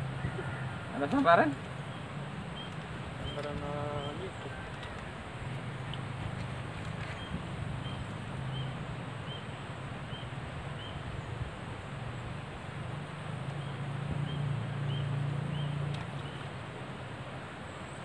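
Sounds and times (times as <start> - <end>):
bird chirping: 0.0 - 5.0, 6.8 - 11.3, 13.6 - 16.5.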